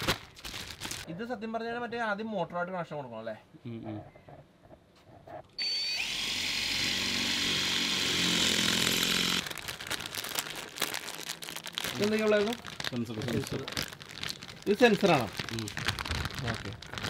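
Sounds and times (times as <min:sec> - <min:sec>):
plastic bag crinkling: 0:00.0 - 0:01.1, 0:09.4 - 0:17.0
cordless drill boring into wall: 0:05.6 - 0:09.5.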